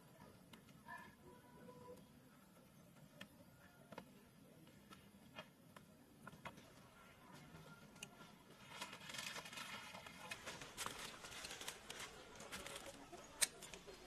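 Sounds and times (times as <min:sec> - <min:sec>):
leaves and twigs rustling: 0:08.5 - 0:14.0.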